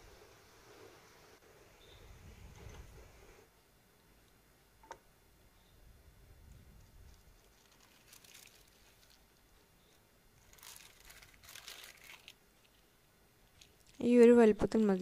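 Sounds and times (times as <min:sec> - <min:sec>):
thin plastic sheet crinkling: 0:06.8 - 0:15.0.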